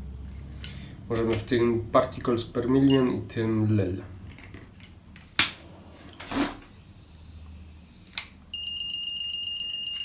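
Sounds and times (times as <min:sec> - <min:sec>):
gas detector alarm tone: 0:08.5 - 0:10.0.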